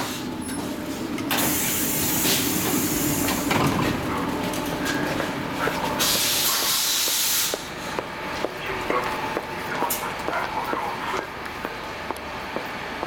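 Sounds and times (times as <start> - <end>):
train doors air hiss: 0.0 - 3.8, 6.0 - 8.0
train low hum: 0.0 - 13.0.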